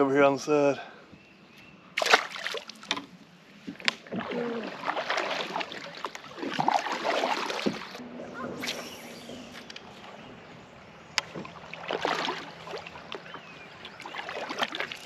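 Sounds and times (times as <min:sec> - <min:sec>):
kayak paddle splashing in water: 0:02.0 - 0:03.1, 0:03.7 - 0:08.0, 0:11.2 - 0:15.0.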